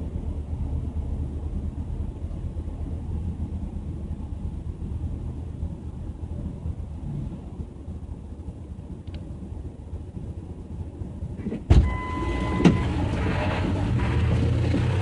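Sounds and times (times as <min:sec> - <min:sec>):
vehicle idling rumble: 0:00.0 - 0:15.0
click: 0:09.0 - 0:09.3
loud thump: 0:11.4 - 0:12.0
steady beep: 0:11.8 - 0:13.0.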